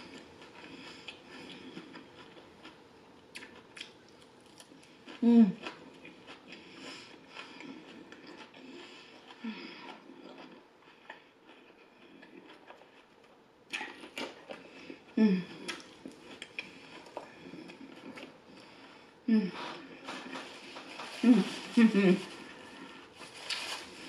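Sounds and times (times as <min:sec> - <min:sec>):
chewing salad: 0:00.0 - 0:24.0
person humming: 0:15.2 - 0:15.6, 0:19.3 - 0:19.8, 0:21.1 - 0:22.3.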